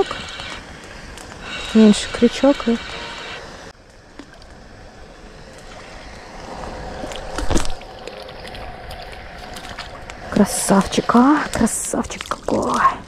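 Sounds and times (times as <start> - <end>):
water splashing and sloshing: 3.7 - 13.0.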